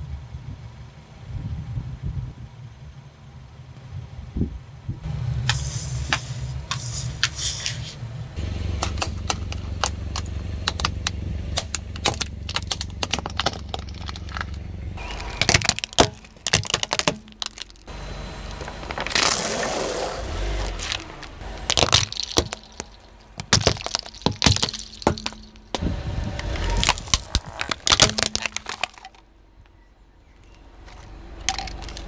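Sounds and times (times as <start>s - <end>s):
car engine idling: 2.4s - 29.6s
tyre crushing small objects: 8.8s - 25.8s, 26.4s - 29.2s, 30.8s - 32.0s.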